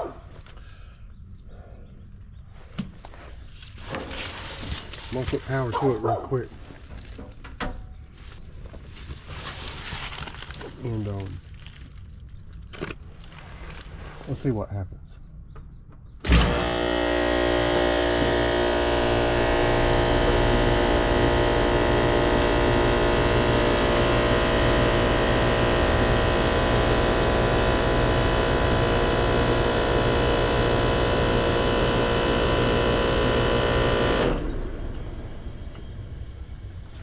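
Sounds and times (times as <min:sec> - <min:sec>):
compressor humming: 0:00.0 - 0:11.8, 0:15.9 - 0:37.0
start-up jolt: 0:16.2 - 0:23.6.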